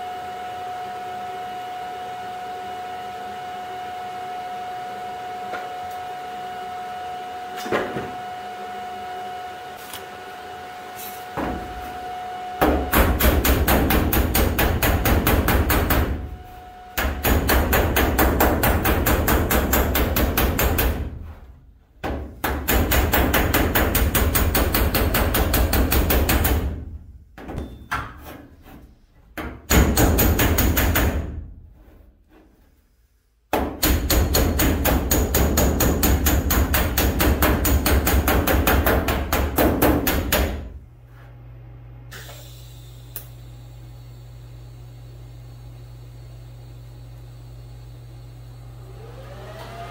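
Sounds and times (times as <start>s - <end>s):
body hammer striking sheet steel: 12.6s - 16.3s, 17.0s - 21.4s, 22.0s - 26.8s, 29.4s - 31.4s, 33.5s - 40.7s.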